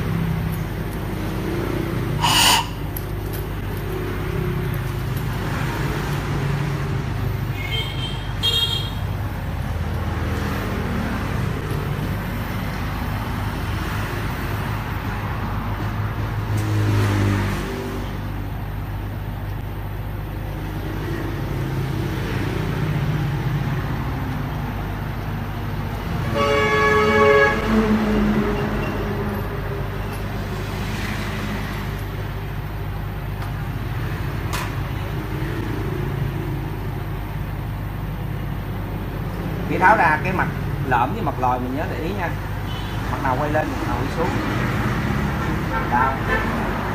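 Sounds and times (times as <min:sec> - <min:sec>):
road traffic rumble: 0:00.0 - 0:46.9
short high horn toot: 0:02.2 - 0:03.0
vehicle horn: 0:02.2 - 0:03.0, 0:07.5 - 0:09.1, 0:26.2 - 0:28.4, 0:42.7 - 0:43.0, 0:45.7 - 0:46.7.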